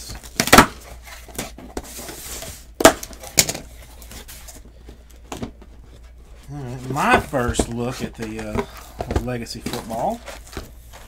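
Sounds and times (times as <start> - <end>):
rubbing and shuffling of boxes: 0.0 - 11.0
boxes knocking on tabletop: 7.0 - 10.0.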